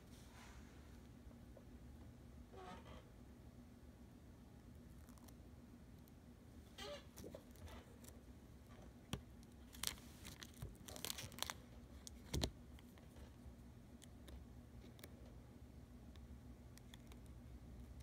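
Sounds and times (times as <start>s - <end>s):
plastic sheet crinkling: 9.6s - 13.1s.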